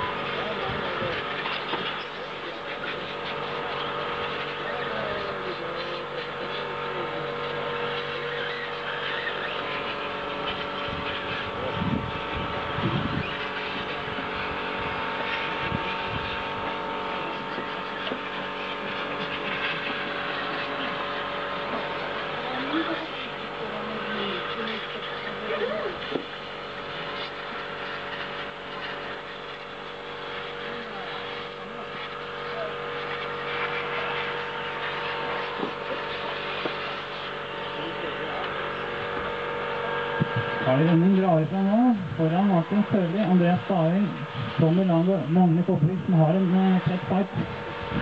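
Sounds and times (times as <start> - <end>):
rc car motors whining: 0.0 - 48.0
rc cars racing on dirt: 3.1 - 10.8.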